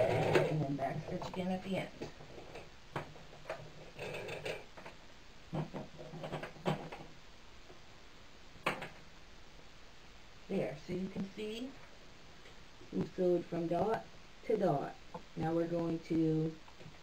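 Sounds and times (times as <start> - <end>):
sewing machine stitching: 0.0 - 0.6.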